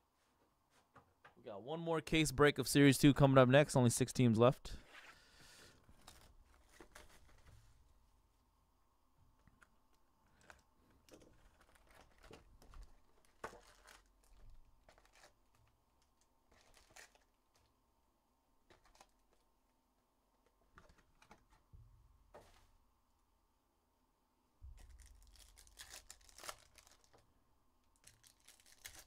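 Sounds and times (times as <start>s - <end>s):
foil packs crinkling: 10.3s - 17.7s, 18.7s - 19.5s, 24.7s - 27.2s, 28.0s - 29.0s.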